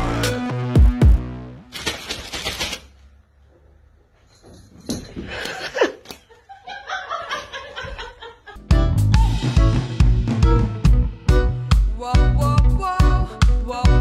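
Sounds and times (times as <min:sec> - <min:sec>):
person laughing: 0:05.3 - 0:08.6.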